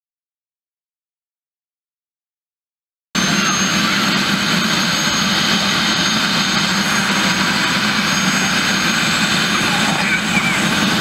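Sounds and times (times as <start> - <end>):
helicopter engine and rotor: 3.2 - 11.0
high turbine whine: 3.2 - 11.0.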